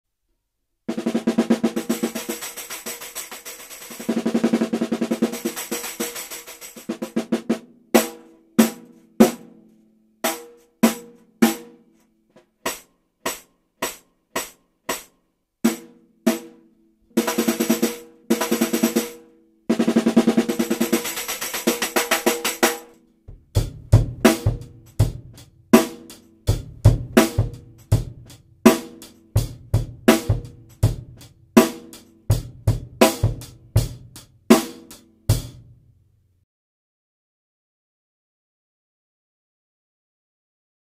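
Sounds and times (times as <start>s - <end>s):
drum kit groove: 0.9s - 9.5s, 12.5s - 16.6s, 17.2s - 35.8s
metallic snare drum rolls: 1.0s - 7.4s, 19.8s - 22.9s.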